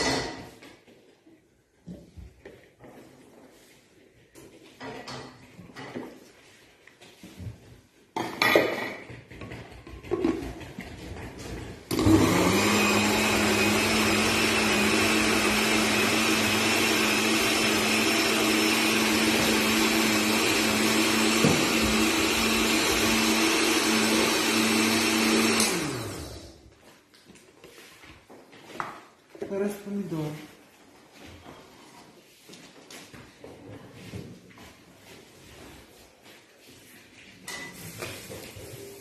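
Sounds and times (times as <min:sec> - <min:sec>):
blender motor running: 0:11.9 - 0:26.6.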